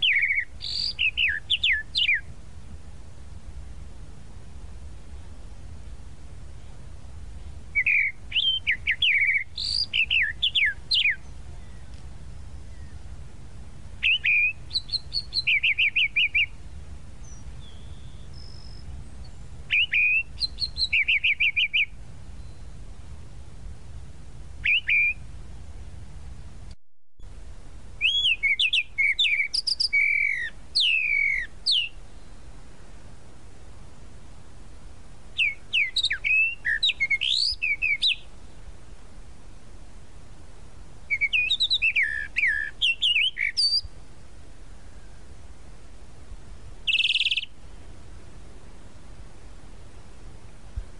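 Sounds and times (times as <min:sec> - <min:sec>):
mockingbird singing: 0:00.0 - 0:02.3, 0:07.8 - 0:12.0, 0:14.0 - 0:16.6, 0:17.2 - 0:22.7, 0:24.6 - 0:25.2, 0:28.0 - 0:32.4, 0:35.4 - 0:38.4, 0:41.1 - 0:43.9, 0:46.8 - 0:47.6
low background rumble: 0:00.0 - 0:41.3.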